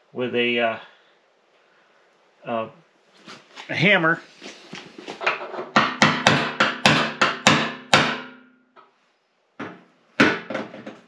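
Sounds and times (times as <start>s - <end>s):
hammer tapping metal: 5.6s - 8.4s.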